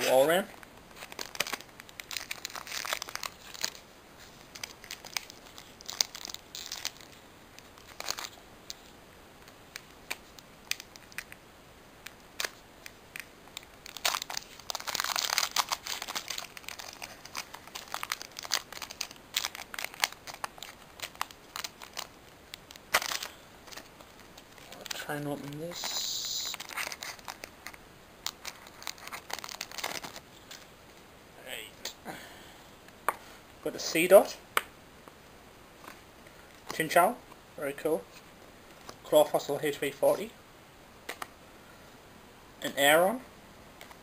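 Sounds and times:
foil wrapper crinkling: 0:00.5 - 0:11.4, 0:12.0 - 0:30.7.

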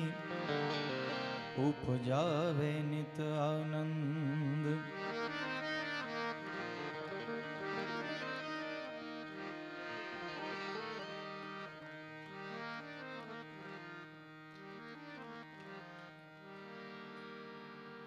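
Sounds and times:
harmonium melody: 0:00.0 - 0:18.0.

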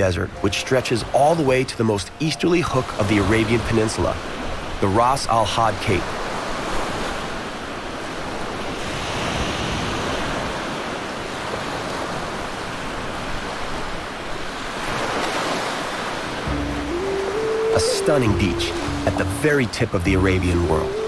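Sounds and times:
soft music notes: 0:00.0 - 0:04.0, 0:16.4 - 0:21.0
ocean surf washing onto beach: 0:00.0 - 0:21.0.

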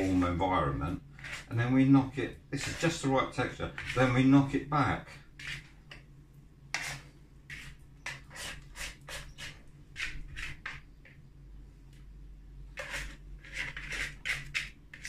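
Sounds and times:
dough scraper scraping bowl: 0:01.1 - 0:01.7, 0:02.6 - 0:04.3, 0:05.4 - 0:05.8, 0:06.7 - 0:11.0, 0:12.8 - 0:15.0.

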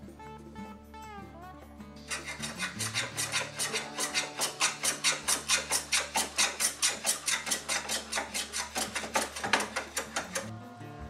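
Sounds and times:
block rasping along wood: 0:02.0 - 0:10.5.

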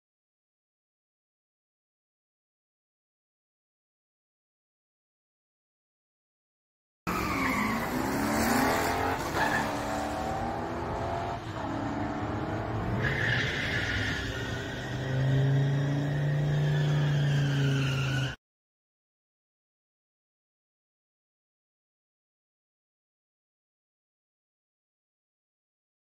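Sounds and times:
car engines revving: 0:07.1 - 0:18.4.

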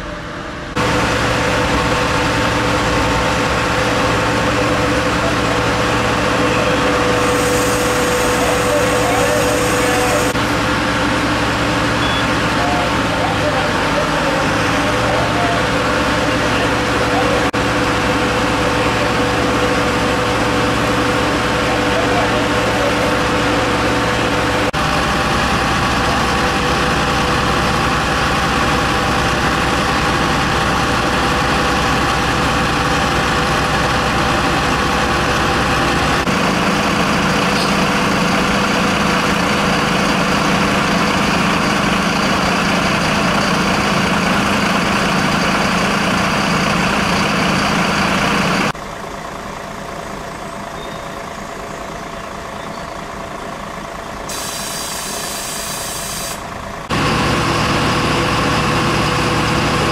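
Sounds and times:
fire truck engines idling: 0:00.0 - 0:59.9.

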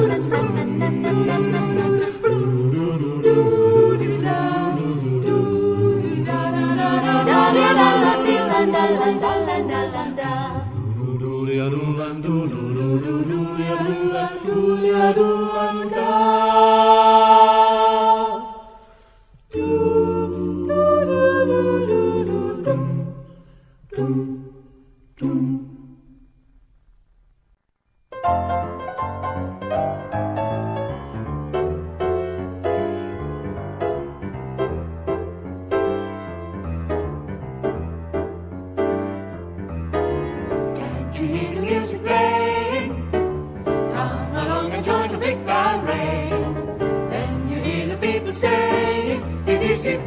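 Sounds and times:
a cappella ensemble singing: 0:00.0 - 0:26.4, 0:40.4 - 0:50.0.

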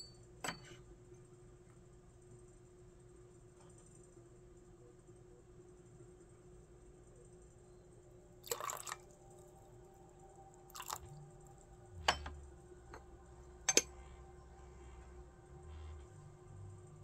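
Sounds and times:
faint steady hum: 0:00.0 - 0:17.0
porcelain teaware clinking: 0:08.4 - 0:09.0, 0:10.7 - 0:11.1, 0:13.6 - 0:13.9.

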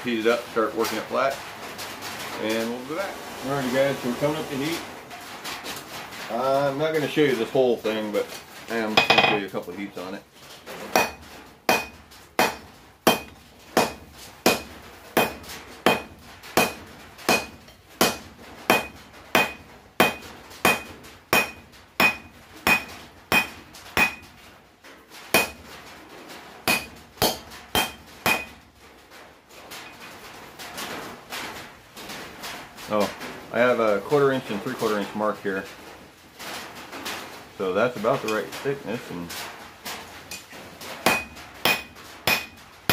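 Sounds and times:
hammer striking steel on anvil: 0:09.0 - 0:09.4, 0:10.9 - 0:24.3, 0:25.4 - 0:25.6, 0:26.7 - 0:28.6, 0:41.0 - 0:42.9.

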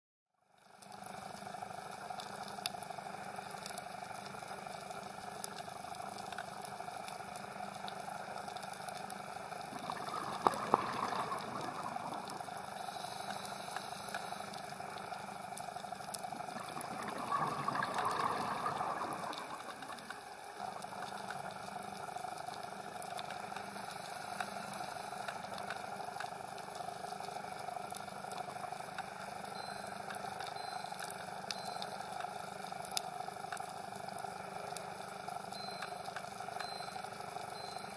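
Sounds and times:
bubbling of exhaled breath: 0:09.6 - 0:15.0, 0:16.2 - 0:21.0
underwater hiss: 0:09.7 - 0:15.0, 0:23.6 - 0:25.4.

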